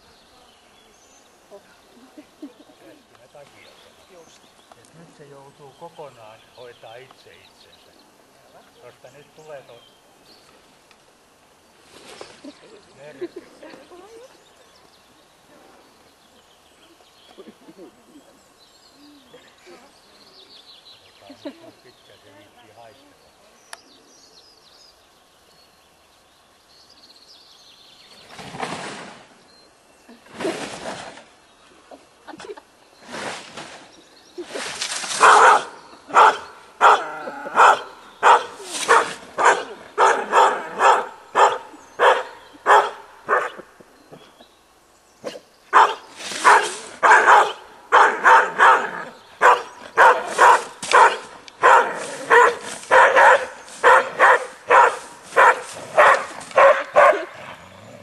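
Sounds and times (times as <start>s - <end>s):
dog barking: 35.2s - 43.6s, 45.7s - 57.4s.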